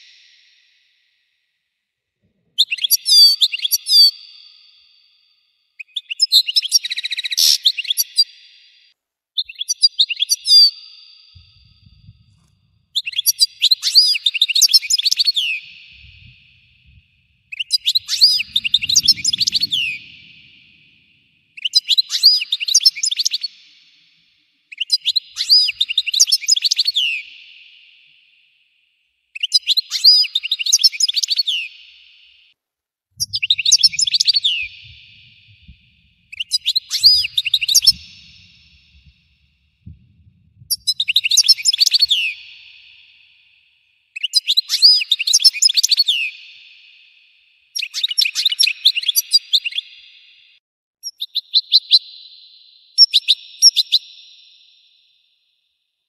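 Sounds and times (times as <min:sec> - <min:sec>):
goldfinch twittering song: 0:13.0 - 0:23.5, 0:33.2 - 0:39.3, 0:40.6 - 0:43.0.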